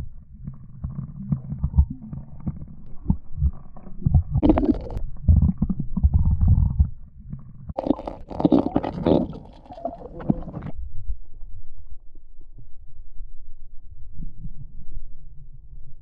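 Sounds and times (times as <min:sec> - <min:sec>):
water sloshing and gurgling: 0:00.0 - 0:10.8
muffled underwater rumble: 0:00.0 - 0:16.0.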